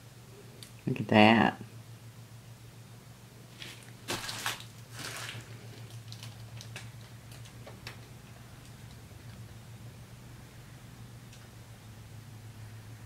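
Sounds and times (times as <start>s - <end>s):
steady low hum: 0.0s - 13.0s
short rustling noises: 3.5s - 7.5s.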